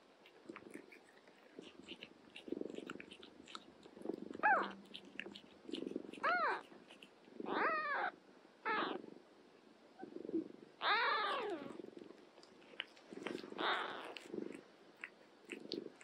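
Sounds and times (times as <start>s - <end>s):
cat purring: 0.2s - 8.0s, 10.0s - 16.0s
kittens mewing: 4.4s - 6.8s, 10.8s - 11.8s, 13.2s - 15.9s.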